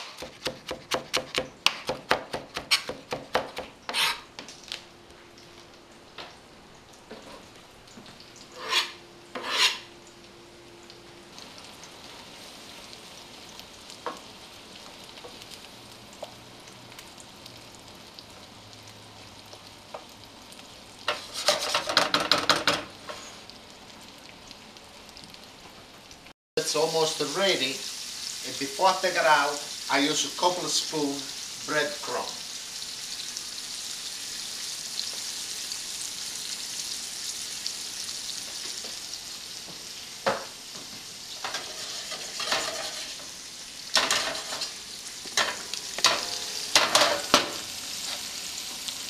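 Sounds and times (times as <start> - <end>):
knife chopping on plastic board: 0.0 - 4.1
seafood sizzling in a frying pan: 2.6 - 49.0
wooden spoon scraping a pan: 3.9 - 4.3, 8.5 - 9.9, 21.1 - 22.4, 41.4 - 43.3.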